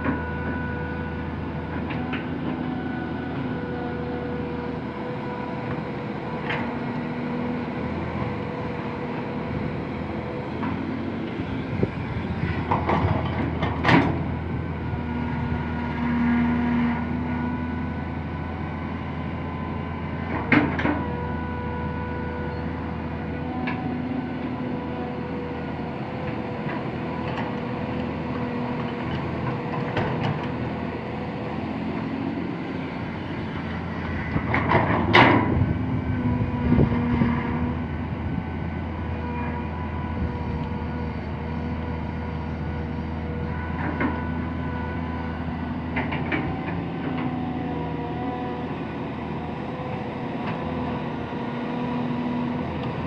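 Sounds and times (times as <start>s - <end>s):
excavator diesel engine running: 0.0s - 53.0s
hydraulic whine: 28.8s - 47.3s.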